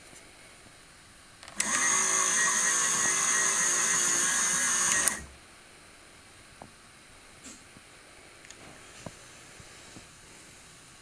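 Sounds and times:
small electric motor whining: 1.6s - 5.3s.

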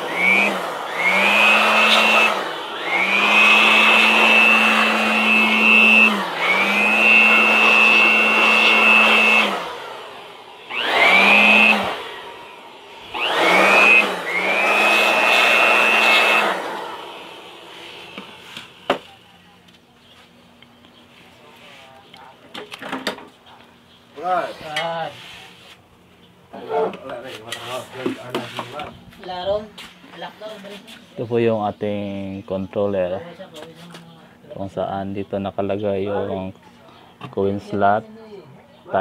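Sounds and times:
electric blower motor whine: 0.0s - 19.4s.

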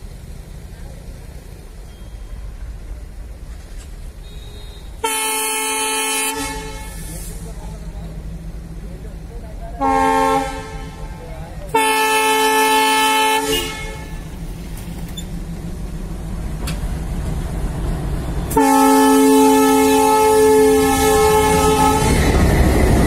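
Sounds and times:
locomotive engine low rumble: 0.0s - 23.0s
locomotive horn blasts: 4.2s - 7.4s, 9.8s - 14.4s, 18.5s - 22.4s.

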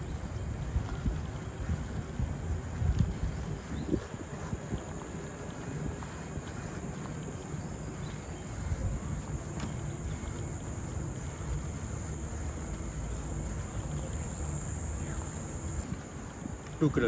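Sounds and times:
wind rumble from cycling: 0.0s - 17.0s
high-pitched insect chorus: 5.6s - 17.0s.

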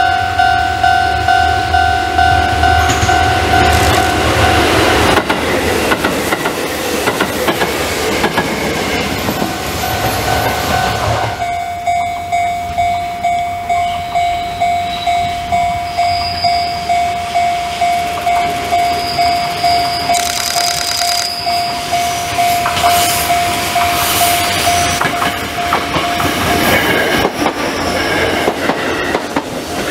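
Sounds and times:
train wheels clacking over rails: 2.7s - 11.4s, 22.6s - 29.9s.

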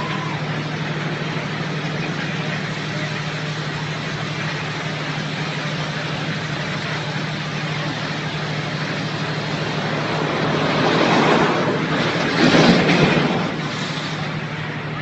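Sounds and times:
boat engine droning: 0.0s - 15.0s
water noise: 0.0s - 15.0s
wind rushing: 9.4s - 14.2s.

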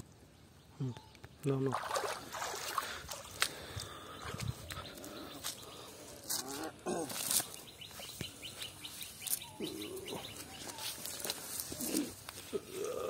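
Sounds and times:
bird calls: 3.5s - 12.8s.

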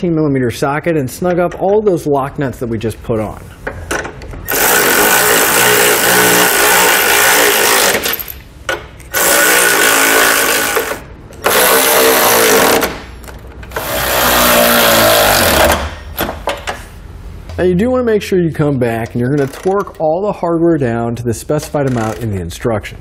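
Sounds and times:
electric ratchet whirring: 4.5s - 8.3s, 9.1s - 13.1s, 13.7s - 16.0s.

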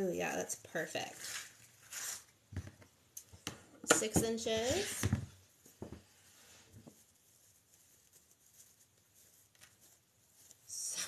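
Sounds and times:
ribbon rustling: 0.8s - 11.0s.

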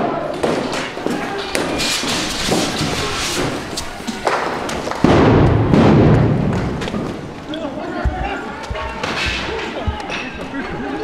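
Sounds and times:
thumps and knocks: 7.9s - 10.8s.

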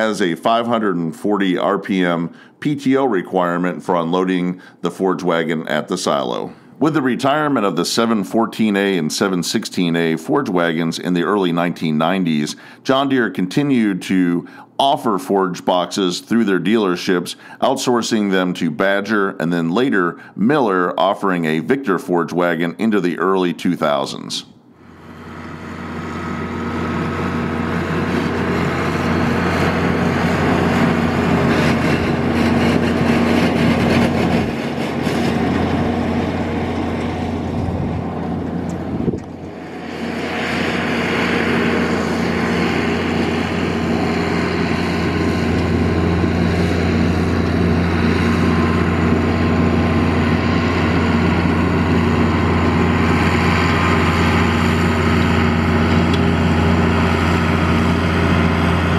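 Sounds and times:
tractor diesel engine under load: 0.0s - 9.3s, 14.4s - 15.0s, 24.8s - 58.9s
forage harvester chopping: 28.1s - 37.3s.

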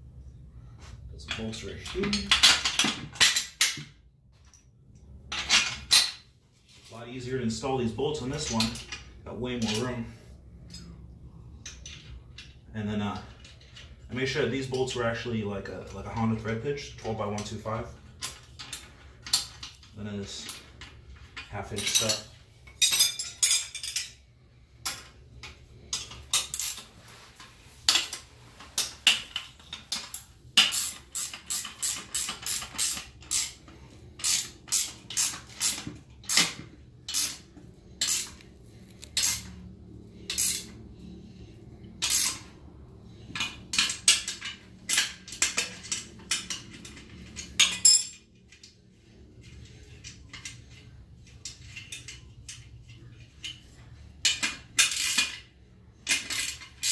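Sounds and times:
wrench clinking against metal: 21.4s - 24.2s, 42.0s - 42.5s, 43.4s - 48.6s, 51.2s - 52.7s.

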